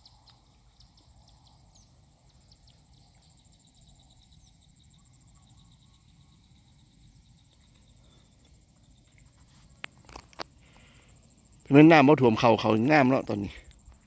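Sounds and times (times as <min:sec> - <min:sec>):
insect trill: 0:00.0 - 0:14.0
insects chirping: 0:00.0 - 0:14.0.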